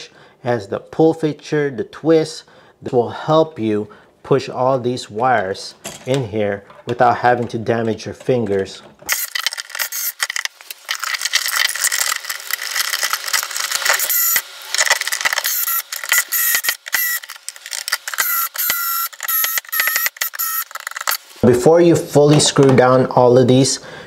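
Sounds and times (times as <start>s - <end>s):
cordless screwdriver whining: 9.1s - 10.5s, 13.4s - 21.2s.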